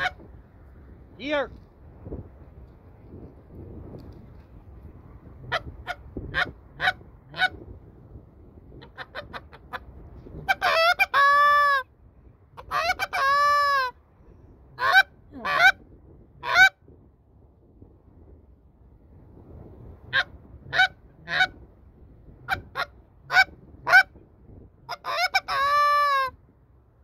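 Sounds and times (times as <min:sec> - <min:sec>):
goose call clucks and honks: 0:00.0 - 0:00.2, 0:05.5 - 0:07.6, 0:08.8 - 0:11.9, 0:12.6 - 0:14.0, 0:14.8 - 0:15.8, 0:16.4 - 0:16.8, 0:20.1 - 0:21.6, 0:22.4 - 0:24.2, 0:24.9 - 0:26.4.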